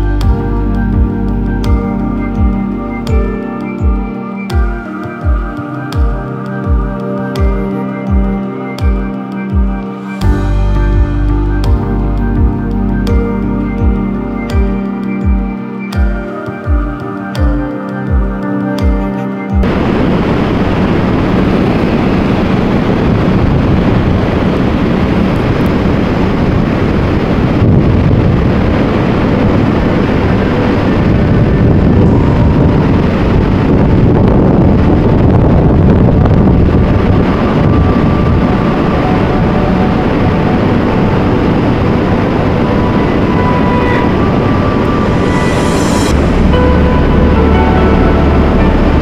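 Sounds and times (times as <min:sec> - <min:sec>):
waterfall rushing: 0:19.6 - 0:49.0.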